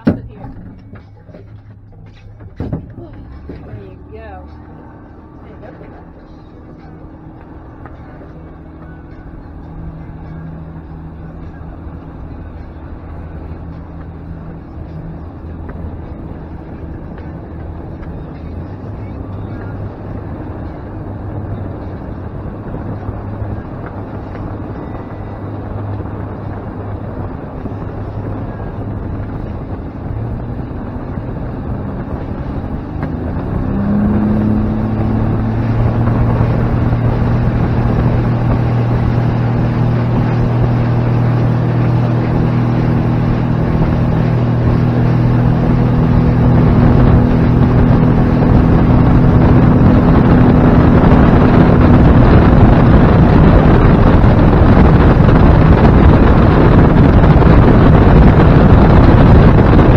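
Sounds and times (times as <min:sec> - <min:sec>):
outboard motor: 0:00.0 - 0:59.9
wind on microphone: 0:19.0 - 0:59.9.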